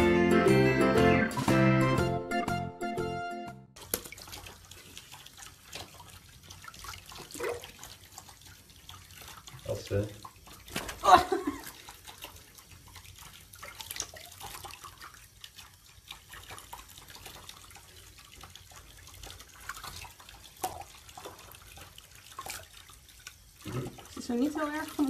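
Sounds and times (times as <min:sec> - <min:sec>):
water dripping and splashing in a tub: 0:03.7 - 0:25.0.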